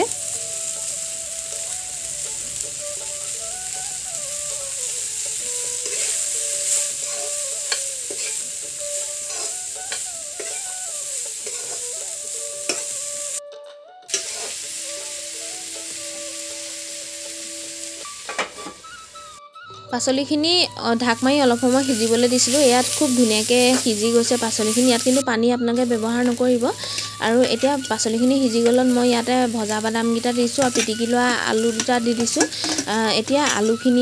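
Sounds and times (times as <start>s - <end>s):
vegetables sizzling in hot oil: 0.0s - 13.4s, 14.1s - 19.4s, 20.0s - 34.0s
metal spatula scraping pan: 5.2s - 13.1s, 14.1s - 14.7s, 26.0s - 34.0s.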